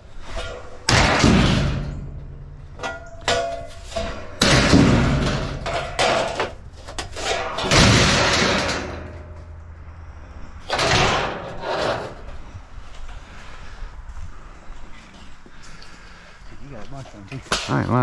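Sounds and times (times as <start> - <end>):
scrap metal thuds and clangs: 0.0 - 13.5.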